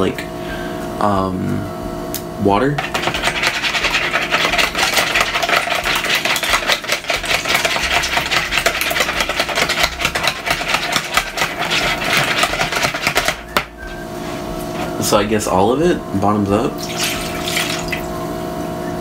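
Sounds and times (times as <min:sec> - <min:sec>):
whisk clicking against bowl: 0:02.8 - 0:13.7.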